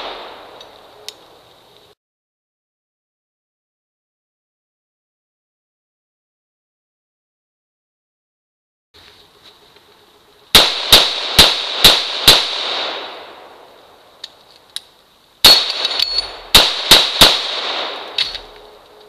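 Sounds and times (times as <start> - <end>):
gunshots: 0.0 - 0.6, 10.6 - 13.4, 15.4 - 18.6.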